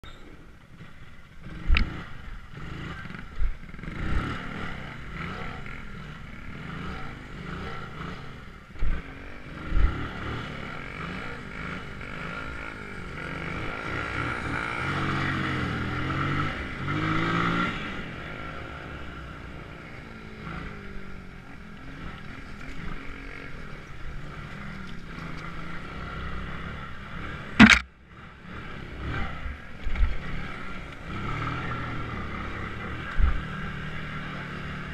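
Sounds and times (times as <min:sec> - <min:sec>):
vehicle engine running: 0:00.5 - 0:34.9
sharp loud bang: 0:27.6 - 0:27.8
thumps: 0:27.6 - 0:27.9.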